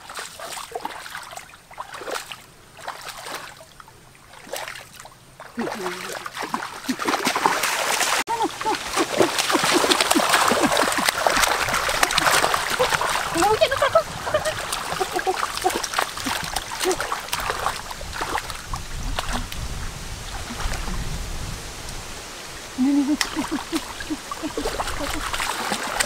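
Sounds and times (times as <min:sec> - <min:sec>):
water splashing: 0:00.0 - 0:26.0.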